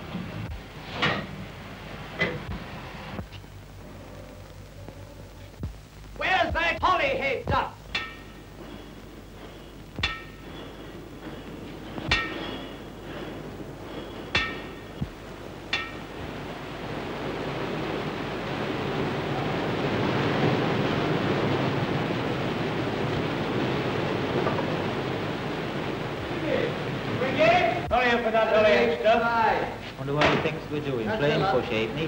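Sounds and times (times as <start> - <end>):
steam train rumbling: 6.2 - 32.0
ringing metallic clangs: 7.9 - 8.9, 10.0 - 15.0, 15.7 - 16.2.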